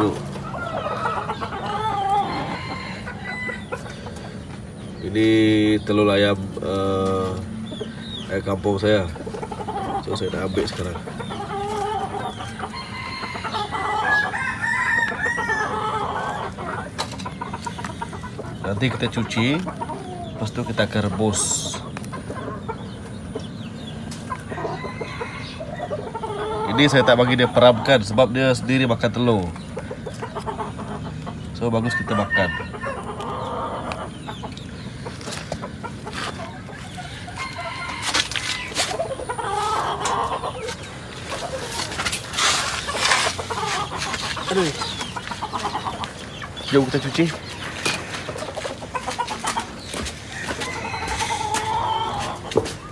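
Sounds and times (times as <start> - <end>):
chickens clucking: 0.0 - 52.9
rooster crowing: 0.4 - 3.9, 12.6 - 16.6, 24.5 - 27.3, 31.8 - 33.9, 37.1 - 40.4, 50.2 - 52.8.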